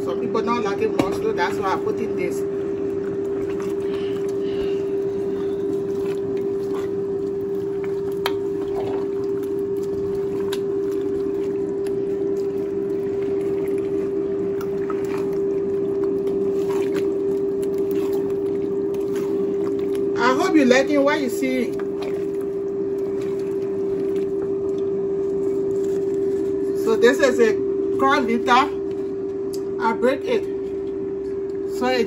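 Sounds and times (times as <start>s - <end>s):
steady hum: 0.0s - 32.0s
soup bubbling in pot: 1.6s - 26.6s.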